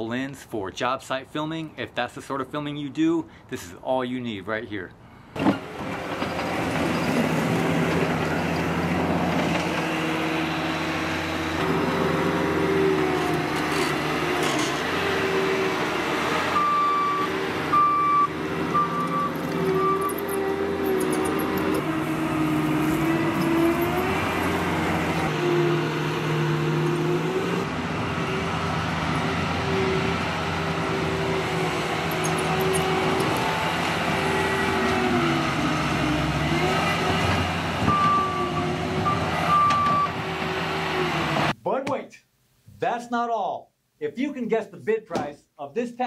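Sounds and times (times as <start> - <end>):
diesel loader engine under load: 5.3 - 41.6
back-up alarm beeping: 16.6 - 20.2
metal clanks: 19.4 - 21.9.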